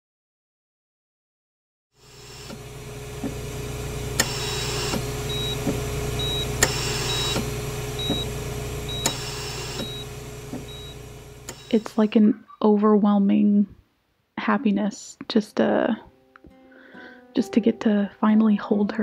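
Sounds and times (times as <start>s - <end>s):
medical equipment hum: 2.0s - 12.3s
sharp click: 4.2s - 5.0s, 6.6s - 7.5s, 11.5s - 11.8s
hiss of air: 4.2s - 5.9s, 6.6s - 8.0s, 8.9s - 12.0s
short high beeps: 5.3s - 5.6s, 6.2s - 7.4s, 9.8s - 10.1s, 10.7s - 11.0s.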